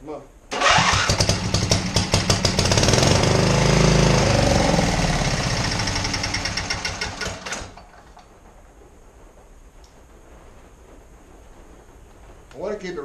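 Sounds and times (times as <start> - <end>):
engine sputtering and dying: 0.5 - 8.4.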